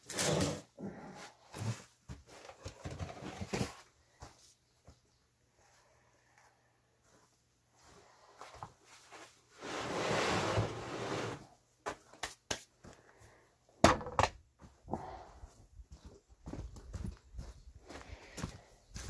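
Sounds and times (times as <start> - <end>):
knocks and thumps from handling: 13.8 - 14.4.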